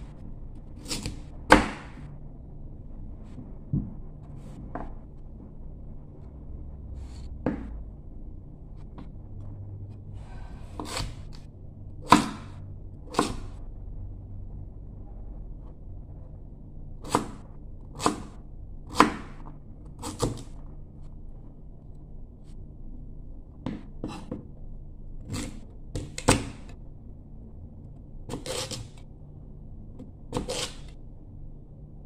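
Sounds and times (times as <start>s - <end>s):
knife chopping on wooden board: 0.8s - 2.0s, 12.0s - 13.5s, 18.9s - 19.4s, 23.6s - 24.4s.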